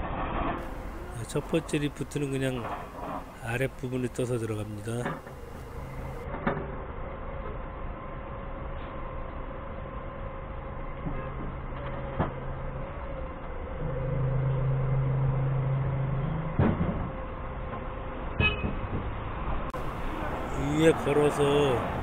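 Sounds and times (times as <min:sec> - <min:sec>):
forklift engine running: 0:00.6 - 0:06.3.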